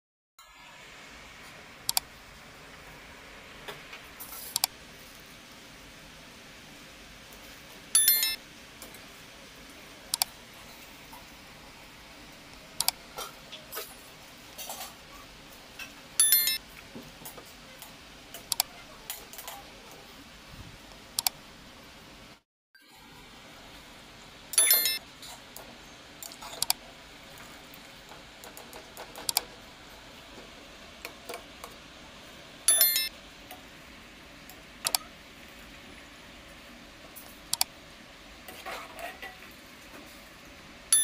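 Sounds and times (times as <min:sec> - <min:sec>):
ringing metallic clinks: 0:08.0 - 0:08.4, 0:16.2 - 0:16.6, 0:24.6 - 0:25.0, 0:32.7 - 0:33.1.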